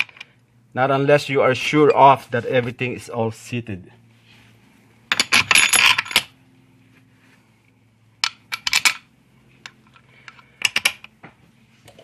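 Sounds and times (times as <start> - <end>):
metal parts and tools clinking: 5.1 - 6.4.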